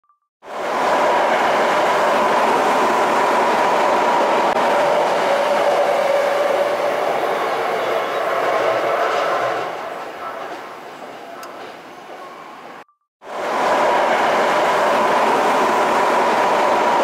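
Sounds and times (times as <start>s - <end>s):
wheel and track noise: 0.5s - 17.0s
electric train motor whine: 13.3s - 17.0s.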